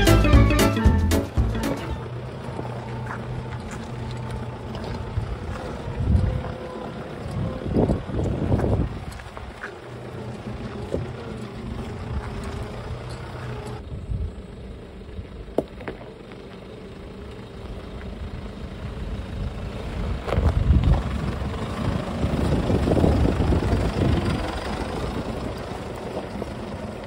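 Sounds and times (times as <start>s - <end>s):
vehicle engine running low: 0.0s - 27.0s.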